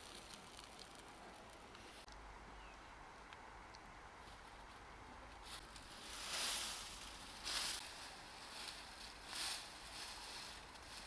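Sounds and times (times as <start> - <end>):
dry leaf thatch rustling: 0.0 - 2.0, 4.2 - 11.0.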